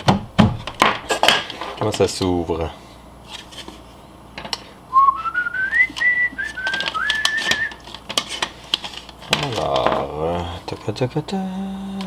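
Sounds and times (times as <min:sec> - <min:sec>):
person whistling a tune: 0:04.9 - 0:07.8.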